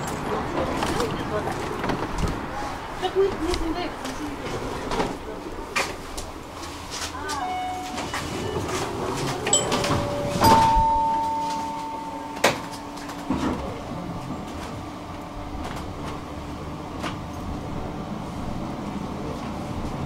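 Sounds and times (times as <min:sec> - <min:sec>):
tram humming: 0:00.0 - 0:20.0
door warning tone: 0:07.4 - 0:15.4
sliding doors shutting clack: 0:07.7 - 0:17.5.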